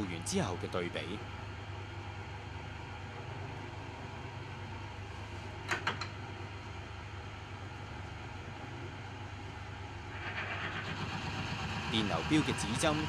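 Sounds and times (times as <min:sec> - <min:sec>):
wear tester machine humming: 0:06.3 - 0:13.0.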